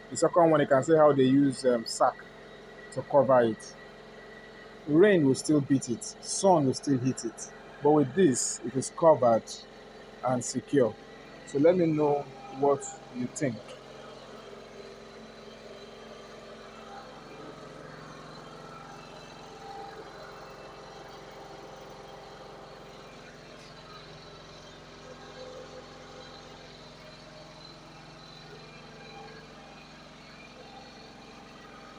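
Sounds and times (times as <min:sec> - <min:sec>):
generator engine humming: 0:00.0 - 0:31.9.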